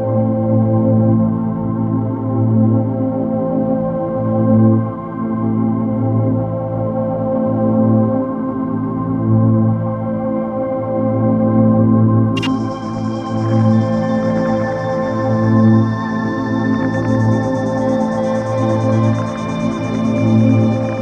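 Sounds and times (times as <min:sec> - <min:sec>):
dark ambient drone music: 0:12.3 - 0:21.0.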